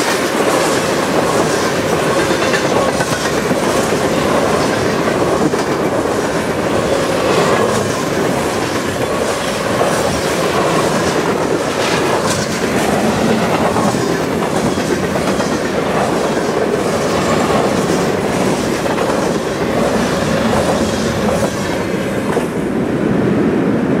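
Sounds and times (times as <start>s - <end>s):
wheels clickety-clack: 0.0s - 22.6s
train wheels rumbling on rail: 0.0s - 24.0s.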